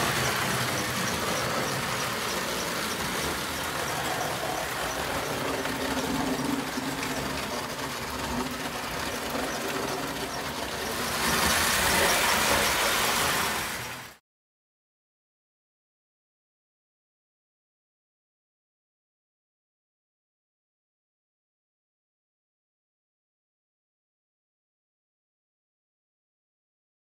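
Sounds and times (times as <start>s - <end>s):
metal wheels clattering on track: 0.0s - 14.1s.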